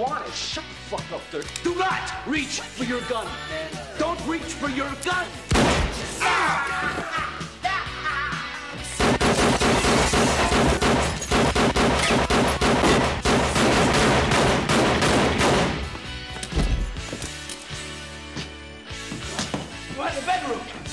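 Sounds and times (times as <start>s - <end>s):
rapid handgun fire: 5.5s - 5.9s, 9.0s - 15.9s.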